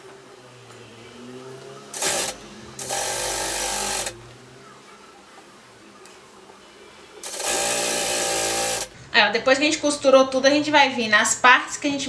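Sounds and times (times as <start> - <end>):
sewing machine stitching: 1.9 - 4.2, 7.2 - 9.0.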